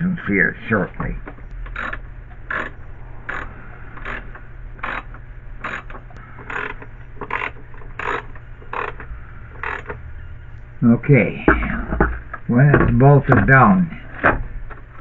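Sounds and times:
socket ratchet clicking: 0:01.6 - 0:10.0.

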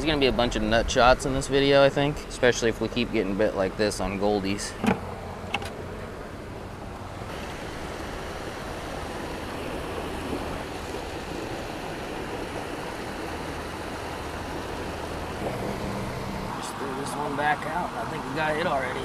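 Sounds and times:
water churning in pool: 0:07.3 - 0:19.0.

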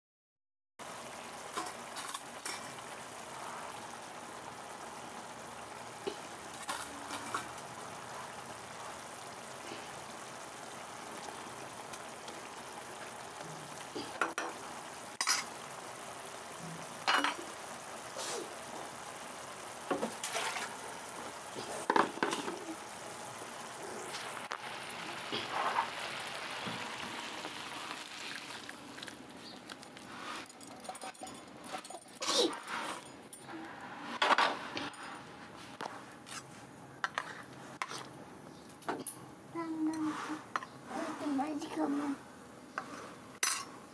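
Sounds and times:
curry sizzling in a frying pan: 0:00.8 - 0:43.9
utensil clinking and scraping pan: 0:20.0 - 0:20.8, 0:30.0 - 0:33.2, 0:42.8 - 0:43.7.

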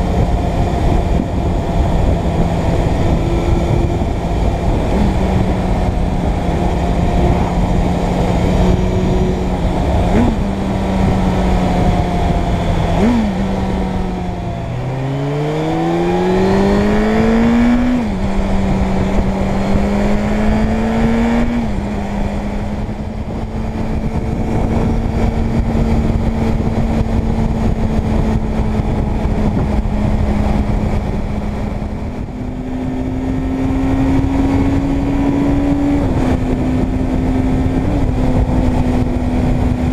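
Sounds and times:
motorcycle engine accelerating: 0:00.0 - 0:39.9
wind rushing over microphone: 0:00.0 - 0:39.9.

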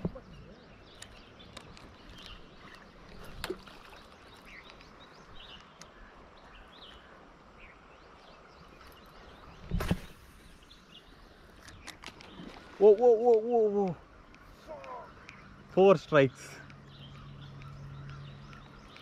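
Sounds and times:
shallow river flowing: 0:00.0 - 0:19.0
bird chirps: 0:14.6 - 0:19.0.

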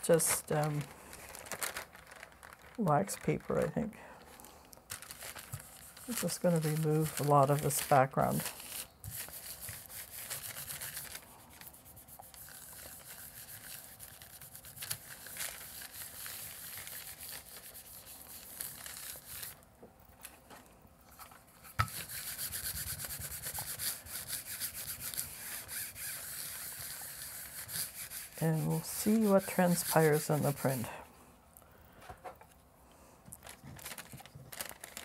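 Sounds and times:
hands rubbing paper: 0:04.9 - 0:19.6, 0:21.6 - 0:31.0, 0:33.4 - 0:35.0
burnisher rubbing over paper: 0:05.0 - 0:19.6, 0:21.9 - 0:31.1.

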